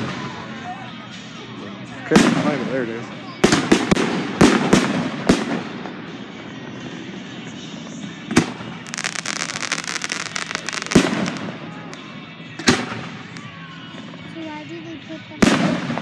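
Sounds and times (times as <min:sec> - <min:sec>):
fireworks bursting with bangs: 0:02.0 - 0:02.8, 0:03.4 - 0:14.4, 0:15.4 - 0:16.0
fireworks crackling: 0:02.1 - 0:14.6, 0:15.3 - 0:16.0.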